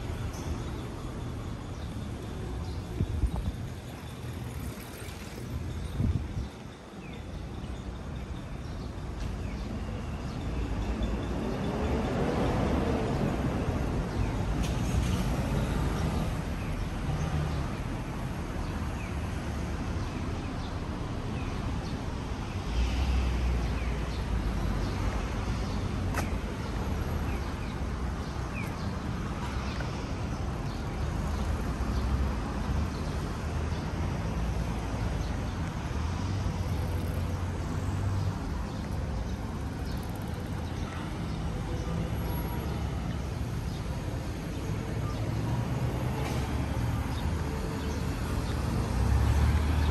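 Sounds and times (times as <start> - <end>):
passing traffic: 0.0 - 49.9.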